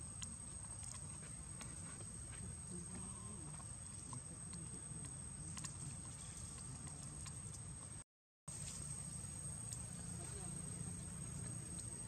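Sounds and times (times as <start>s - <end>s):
soft ticks and rustles: 0.1s - 8.9s.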